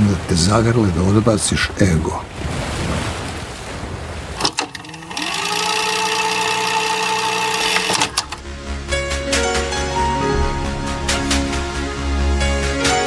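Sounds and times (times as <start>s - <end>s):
surf washing on shore: 0.0s - 8.2s
buzzing drone with overtones: 4.7s - 9.8s.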